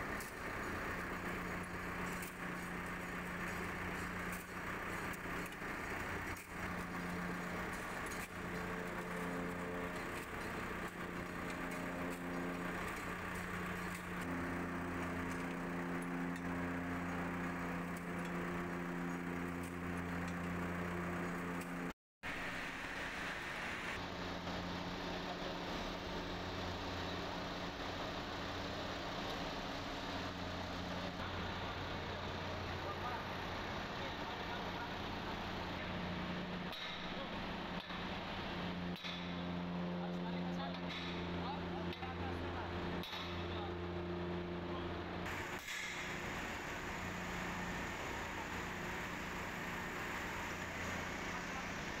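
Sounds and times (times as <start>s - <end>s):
engine idling: 0.0s - 52.0s.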